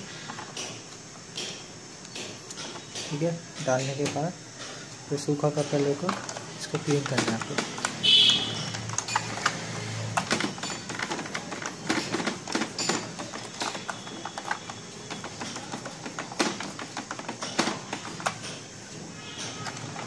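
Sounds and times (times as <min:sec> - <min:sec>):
plastic clicks and knocks: 0:05.5 - 0:18.6.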